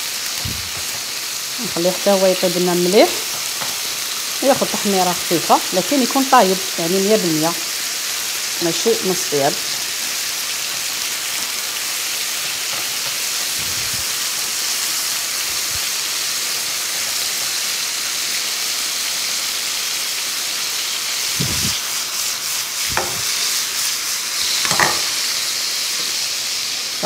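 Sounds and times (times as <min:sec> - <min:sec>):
chicken sizzling in a frying pan: 0:00.0 - 0:27.0
wooden spoon stirring in a pan: 0:21.2 - 0:25.2.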